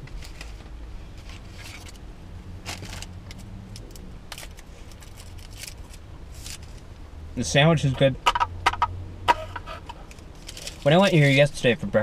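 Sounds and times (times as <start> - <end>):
low rumble inside vehicle: 0.0 - 12.0
paper wrapper crinkling: 2.6 - 6.8, 10.1 - 11.5.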